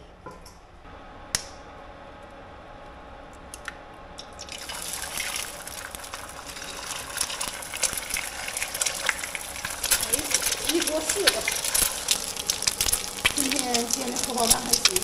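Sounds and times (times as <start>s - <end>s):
eggs frying in hot oil: 4.2s - 15.0s.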